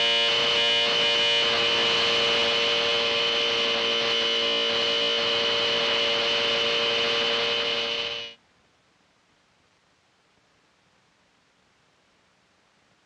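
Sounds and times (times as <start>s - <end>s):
loud electrical hum: 0.0s - 8.4s.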